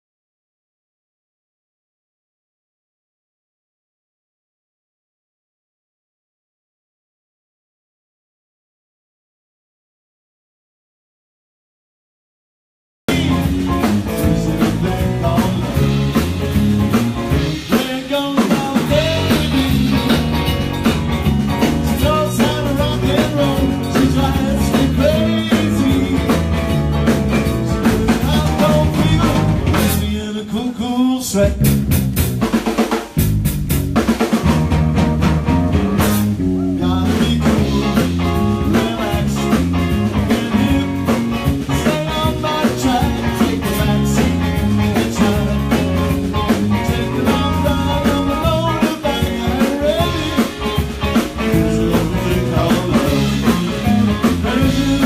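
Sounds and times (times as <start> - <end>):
drum kit: 13.1 - 30.4, 31.4 - 55.0
electric guitars: 13.1 - 30.4, 31.4 - 55.0.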